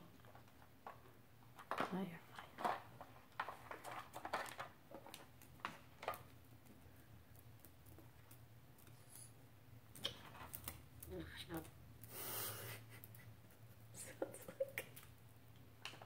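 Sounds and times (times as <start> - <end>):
parrot tapping plastic toys: 2.6 - 6.4.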